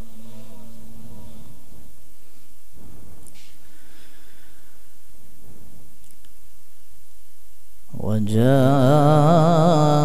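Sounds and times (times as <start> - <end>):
microphone hum and hiss: 0.0 - 10.0
faint breath: 2.3 - 5.8.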